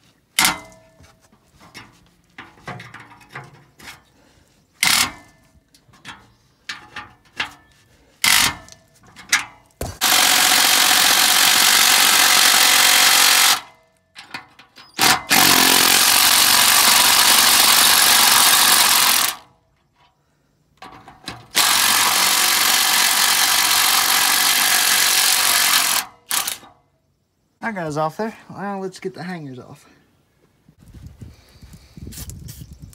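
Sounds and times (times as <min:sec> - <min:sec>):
impact tool hammering bolts: 0:04.8 - 0:05.3, 0:08.2 - 0:14.4, 0:15.0 - 0:19.4.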